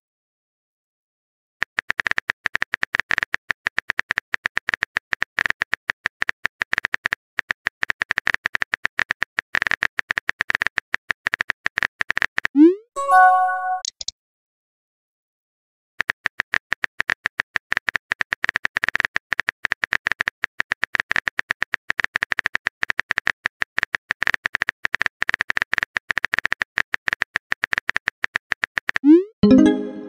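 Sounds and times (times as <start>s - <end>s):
brief chime: 13.0s - 13.9s.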